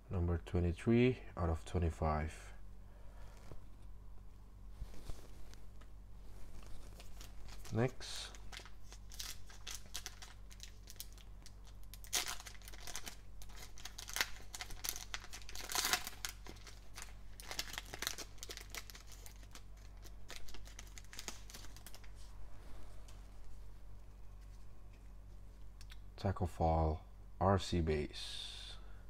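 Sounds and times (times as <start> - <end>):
foil wrapper crinkling: 6.4 - 22.3.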